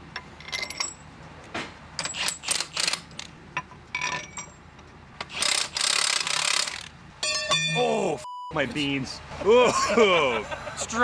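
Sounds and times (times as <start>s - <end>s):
metal clinks and taps: 7.2s - 7.8s.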